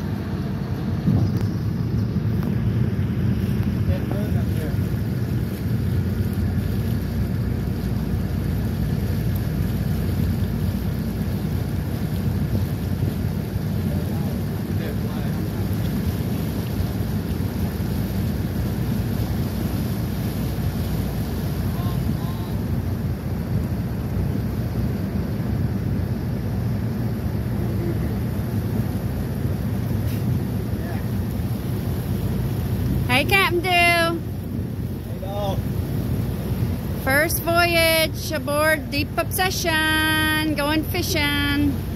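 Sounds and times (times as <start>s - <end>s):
boat engine rumble: 0.0s - 41.9s
wind on microphone: 0.0s - 41.9s.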